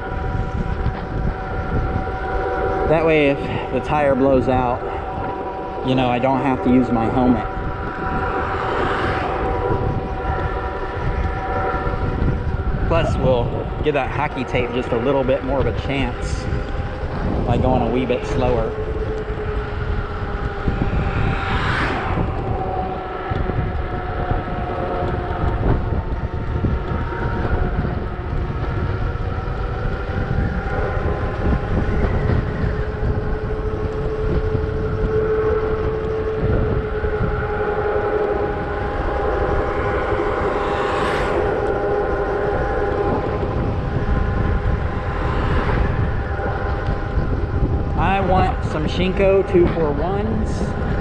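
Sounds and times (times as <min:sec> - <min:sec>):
wind on microphone: 0:00.0 - 0:51.0
whoosh: 0:04.8 - 0:24.2, 0:36.9 - 0:51.0
electric bike motor whining: 0:16.4 - 0:48.0.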